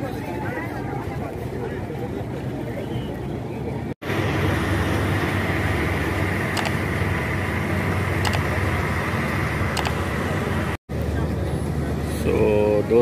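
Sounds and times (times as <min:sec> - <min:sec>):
helicopter engine and rotor drone: 0:04.0 - 0:10.8.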